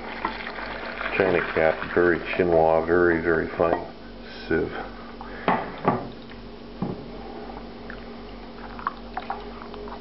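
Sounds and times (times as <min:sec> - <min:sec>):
low steady hum: 0:00.0 - 0:10.0
wet squishing liquid: 0:07.6 - 0:10.0.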